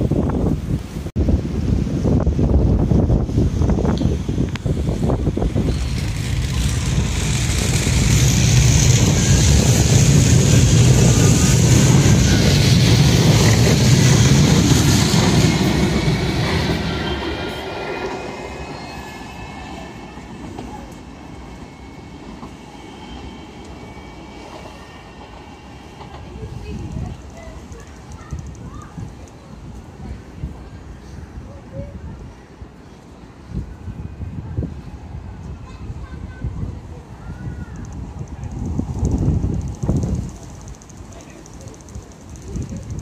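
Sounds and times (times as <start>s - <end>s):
hiss of passing tram cars: 0.0s - 43.0s
steel wheels rumbling on rail: 1.3s - 31.0s, 33.8s - 43.0s
faint rising tram whine: 3.2s - 31.0s.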